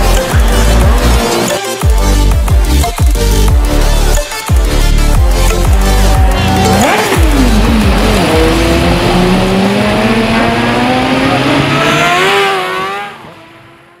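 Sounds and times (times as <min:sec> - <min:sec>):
motorcycle engine accelerating: 0:05.2 - 0:14.0.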